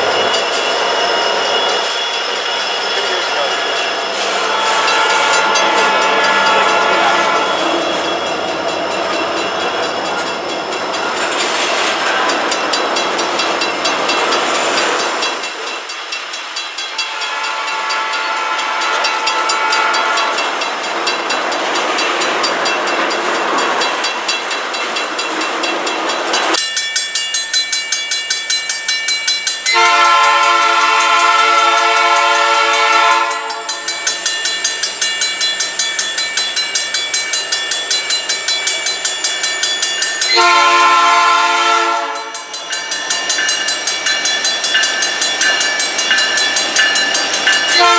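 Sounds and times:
crossing bell ringing: 0:00.0 - 0:47.9
train wheels rumbling and clicking: 0:00.0 - 0:47.9
locomotive chime horn blast: 0:03.0 - 0:10.4, 0:16.8 - 0:20.8, 0:29.7 - 0:34.0, 0:40.3 - 0:42.8, 0:45.4 - 0:47.9
faint locomotive horn: 0:04.2 - 0:08.0, 0:16.9 - 0:20.5, 0:29.8 - 0:33.8, 0:40.3 - 0:42.4.

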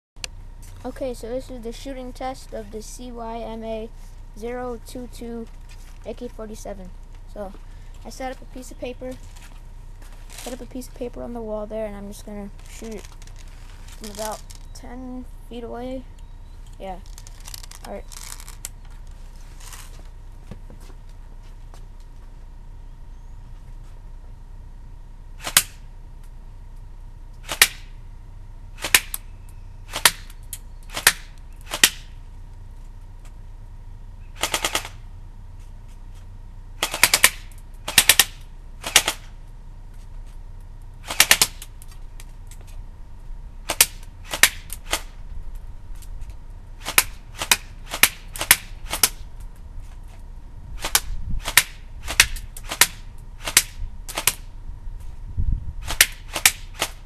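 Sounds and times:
airsoft gun firing: 0:25.4 - 0:25.8, 0:27.4 - 0:27.9, 0:28.8 - 0:29.2, 0:29.9 - 0:30.3, 0:30.9 - 0:32.2, 0:34.4 - 0:35.0, 0:36.8 - 0:39.3, 0:41.0 - 0:41.6, 0:43.6 - 0:45.2, 0:46.8 - 0:49.2, 0:50.8 - 0:54.4, 0:55.8 - 0:57.0.

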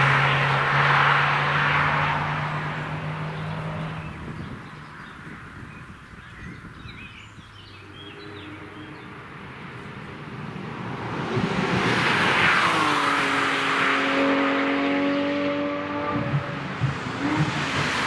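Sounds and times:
race car engine passing: 0:00.0 - 0:04.5, 0:07.9 - 0:18.0
tyre and wind noise: 0:03.3 - 0:08.2.

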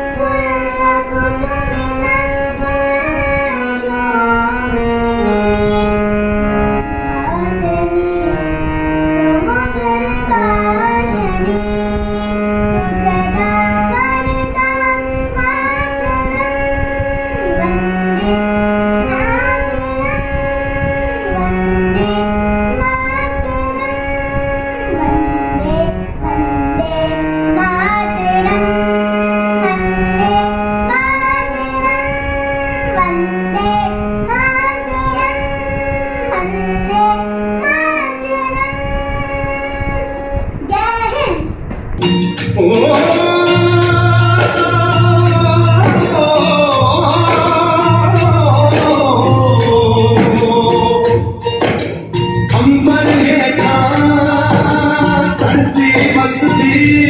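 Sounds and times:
harmonium melody: 0:00.0 - 0:40.6, 0:42.0 - 0:57.0
child singing: 0:00.0 - 0:41.5, 0:42.6 - 0:51.2, 0:52.5 - 0:57.0.

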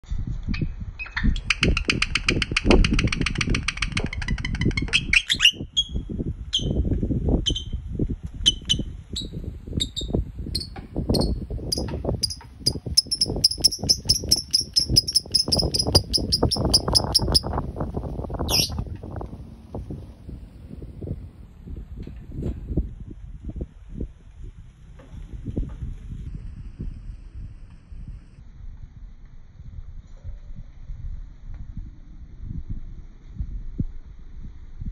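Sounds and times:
wind rumble on microphone: 0:00.0 - 0:34.9
lovebird chirping: 0:04.1 - 0:06.8, 0:07.4 - 0:07.8, 0:08.4 - 0:17.6, 0:18.4 - 0:18.8.

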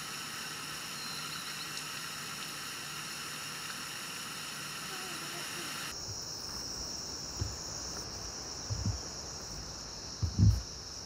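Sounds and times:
insects droning: 0:00.0 - 0:11.0
low thumps: 0:07.3 - 0:07.7, 0:08.6 - 0:09.2, 0:10.2 - 0:10.7.

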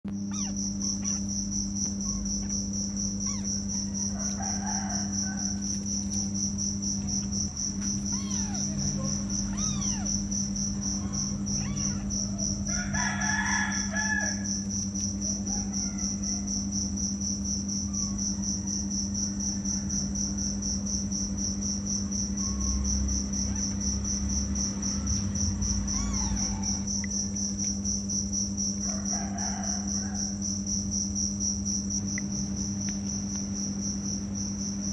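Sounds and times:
steady low hum: 0:00.0 - 0:34.9
crickets chirping: 0:00.1 - 0:34.9.

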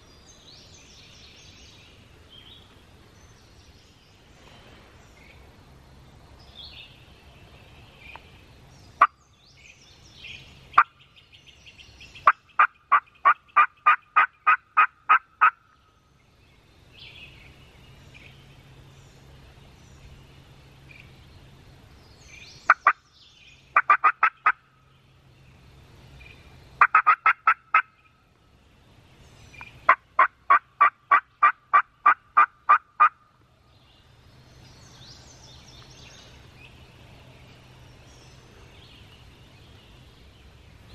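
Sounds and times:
faint songbird chirps: 0:00.0 - 0:40.9
turkey yelping: 0:12.6 - 0:15.6, 0:23.8 - 0:24.6, 0:26.8 - 0:27.9, 0:29.9 - 0:33.2.

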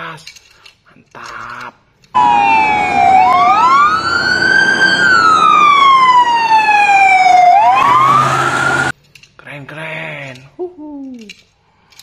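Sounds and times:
emergency vehicle siren wailing: 0:02.2 - 0:08.9.

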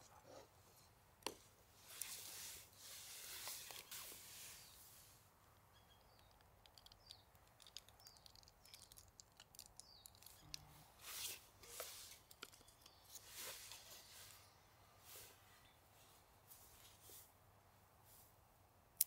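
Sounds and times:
faint small bird chirps: 0:03.8 - 0:16.2
small clicks: 0:06.0 - 0:10.7.

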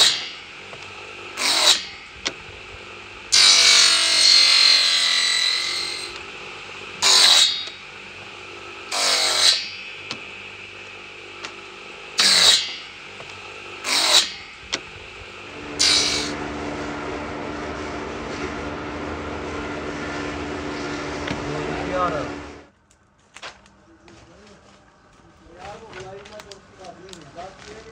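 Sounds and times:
circular saw cutting wood: 0:00.0 - 0:22.7
steady low hum: 0:09.6 - 0:27.9.

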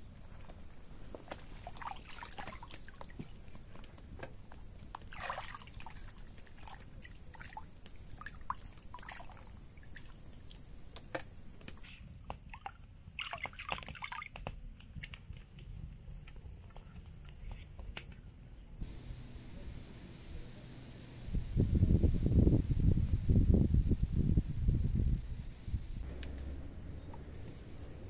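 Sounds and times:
water sloshing and splashing: 0:01.2 - 0:10.7, 0:11.7 - 0:14.5.

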